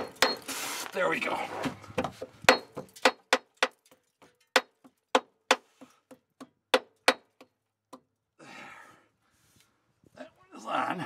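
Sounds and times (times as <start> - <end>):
hammer tapping on metal: 0.0 - 0.4, 2.0 - 8.1.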